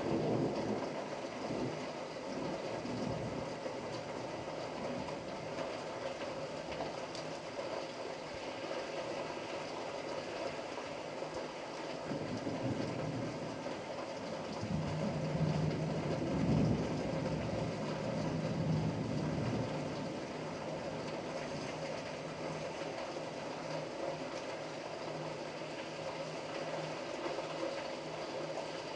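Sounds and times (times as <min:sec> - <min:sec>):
steady rain hiss: 0:00.0 - 0:28.9
low thunder rumble: 0:14.5 - 0:21.6.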